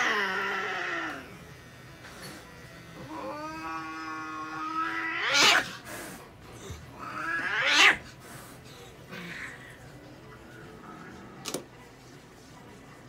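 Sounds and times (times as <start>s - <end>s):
cat yowling: 0.0s - 1.3s, 3.0s - 5.7s, 7.0s - 8.0s.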